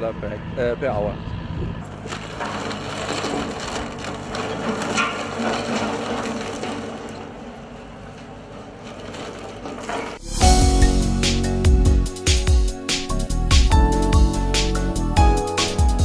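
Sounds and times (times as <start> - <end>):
heavy diesel machine under load: 0.0 - 11.6.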